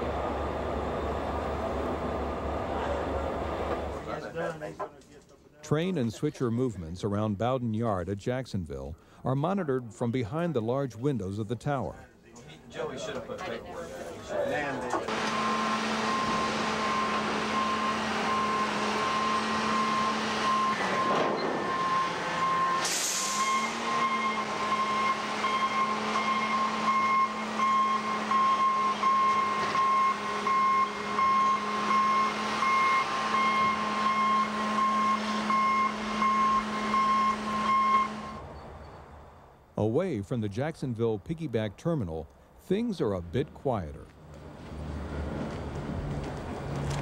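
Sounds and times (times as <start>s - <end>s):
crane engine running: 0.0s - 4.1s, 15.1s - 39.5s
warning alarm beeping: 15.2s - 38.5s
air hiss: 22.8s - 23.4s.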